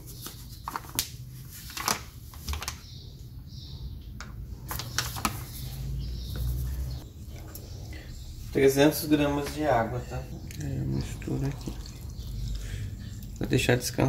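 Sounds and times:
paper bag crinkling: 0.2s - 2.8s, 4.7s - 6.0s.

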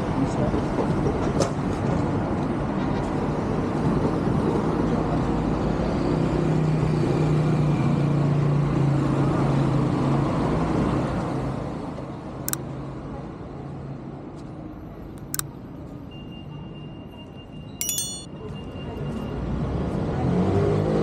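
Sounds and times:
sharp click: 15.2s - 15.4s, 17.8s - 18.3s
passing cars and motorcycles: 19.4s - 21.0s.

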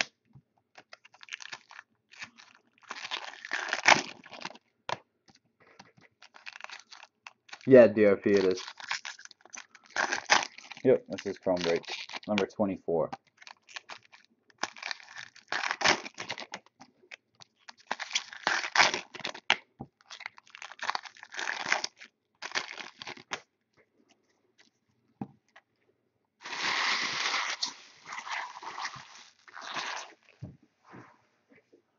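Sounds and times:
foil wrappers tearing and crinkling: 0.8s - 4.6s, 6.2s - 12.5s, 13.3s - 16.6s, 17.4s - 23.4s, 26.4s - 30.3s.

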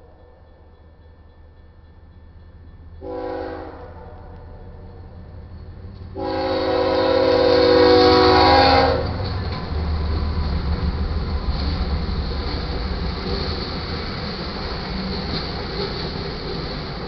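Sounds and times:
train rumbling past: 0.0s - 17.0s
locomotive air horn: 3.0s - 4.6s, 6.2s - 9.2s.

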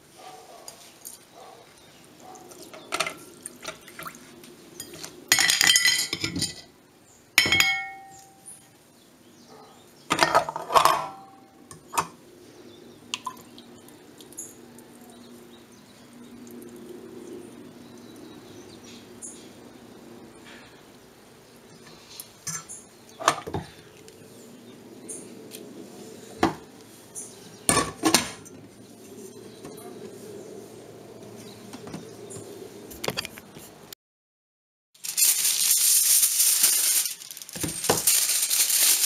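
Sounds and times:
ceramic bowl clinking on metal pot: 7.4s - 8.4s.

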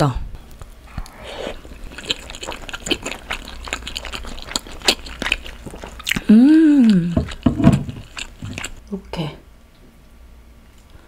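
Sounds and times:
wet chewing mouth sounds: 0.9s - 8.8s
person humming mmm: 6.1s - 7.4s.

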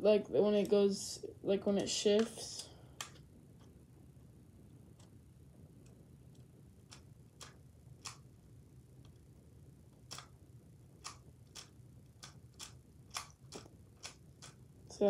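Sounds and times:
low room hum: 0.0s - 15.0s
faint plastic clicks: 1.8s - 3.8s.

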